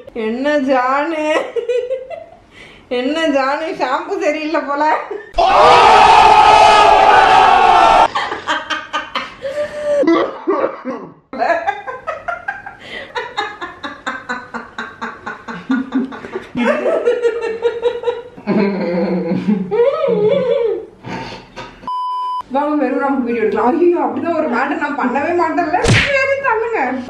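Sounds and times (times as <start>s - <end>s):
woman laughing: 11.4s - 20.8s.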